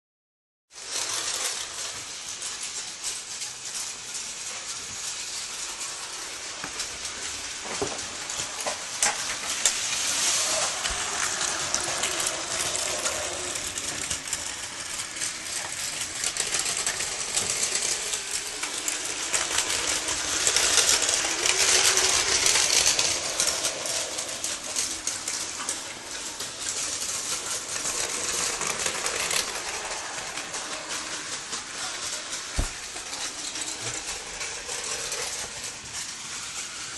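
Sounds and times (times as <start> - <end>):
toy trains whirring and clattering: 0.7 - 36.9.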